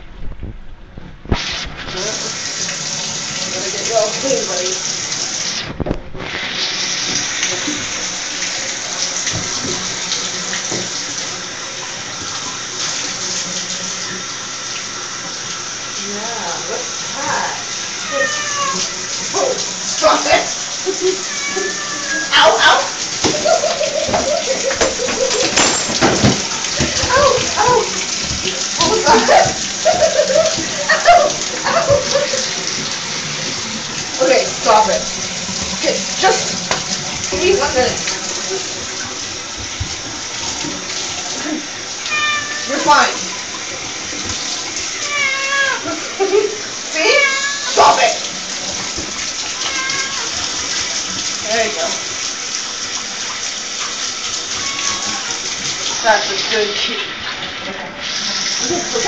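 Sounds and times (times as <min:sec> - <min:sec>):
water pouring into tub: 0:01.2 - 0:59.0
kitten meowing: 0:18.0 - 0:18.9, 0:21.2 - 0:22.8, 0:42.1 - 0:43.2, 0:45.0 - 0:45.8, 0:47.1 - 0:47.8, 0:49.6 - 0:50.3, 0:54.6 - 0:55.4
faint knocks and splashes: 0:23.2 - 0:34.1, 0:34.8 - 0:41.6.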